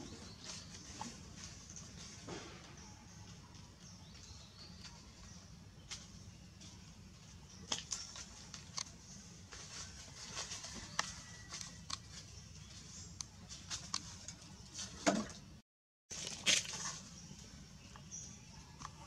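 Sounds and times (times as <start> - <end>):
dry leaves crackling and rustling: 7.7 - 12.7, 16.1 - 17.1.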